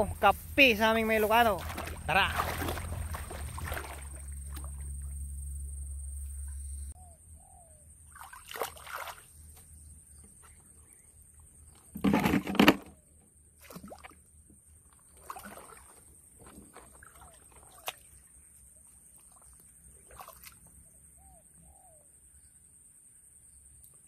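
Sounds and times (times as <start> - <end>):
water splashing and sloshing: 0.0 - 5.4, 8.0 - 9.7, 13.5 - 20.8.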